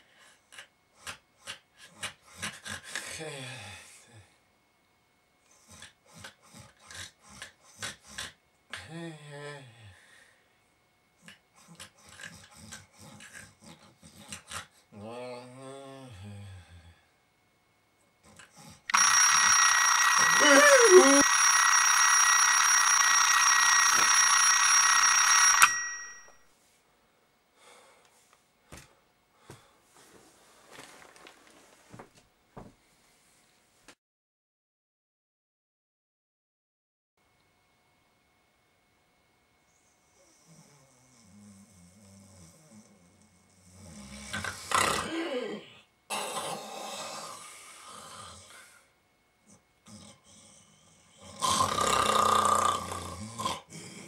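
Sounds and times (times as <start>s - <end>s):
alarm clock ringing: 18.9s - 26.4s
person snoring: 20.2s - 21.4s, 40.2s - 48.9s, 49.8s - 54.0s
alarm clock switch click: 23.6s - 26.3s
faint rustles: 29.9s - 33.9s.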